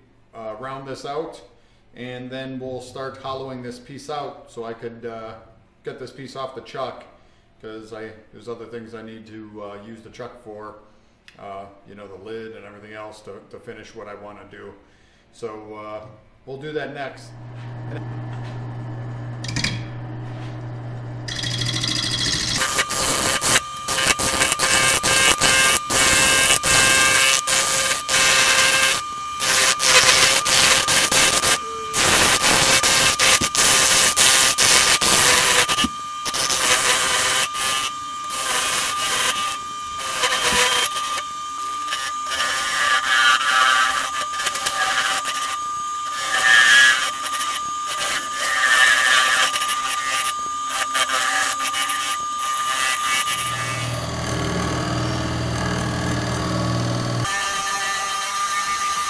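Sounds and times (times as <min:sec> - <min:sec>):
low motor hum: 0:17.3 - 0:22.8, 0:53.4 - 0:57.3
lathe high whine: 0:17.3 - 0:59.0
gouge cutting wood on lathe: 0:21.3 - 0:59.0.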